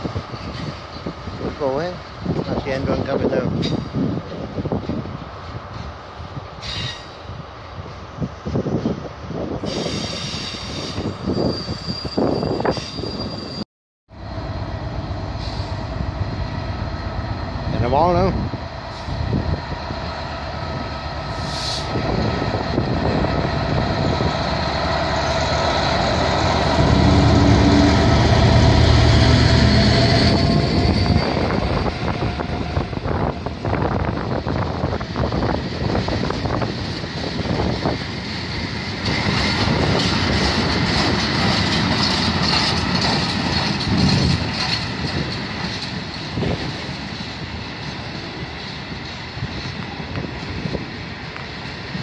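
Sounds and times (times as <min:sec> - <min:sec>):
diesel locomotive engine: 0:00.0 - 0:52.0
train wheels clattering: 0:36.0 - 0:50.6.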